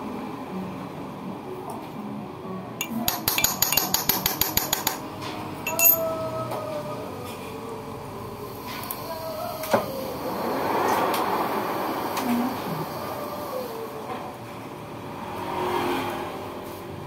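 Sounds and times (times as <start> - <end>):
low workshop hum: 1.2 - 10.6
light metal clinks: 5.7 - 6.1.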